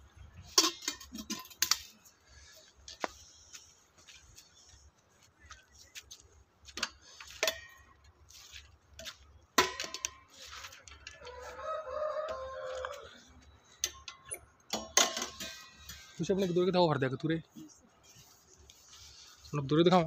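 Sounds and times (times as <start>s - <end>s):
sharp knocks and rustles: 6.7s - 11.4s
rooster crowing: 11.1s - 13.4s.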